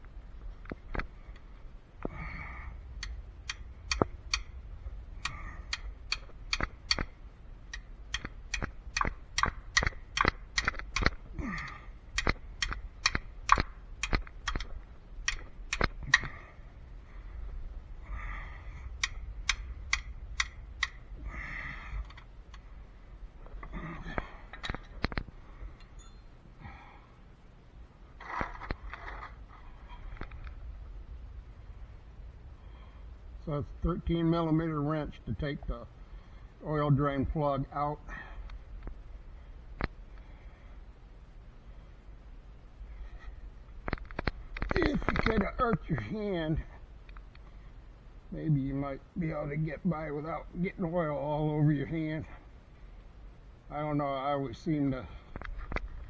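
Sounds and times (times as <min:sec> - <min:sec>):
ratchet wrench clicking: 0:05.2 - 0:07.1, 0:12.2 - 0:16.2.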